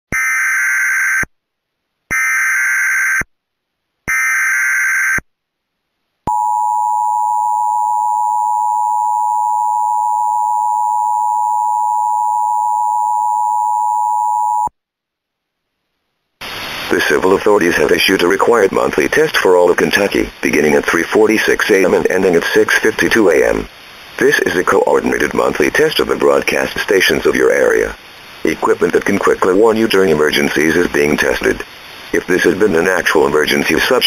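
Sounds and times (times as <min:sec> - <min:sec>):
data tone bursts: 0:06.3 - 0:14.7
two-tone attention signal: 0:06.3 - 0:14.7.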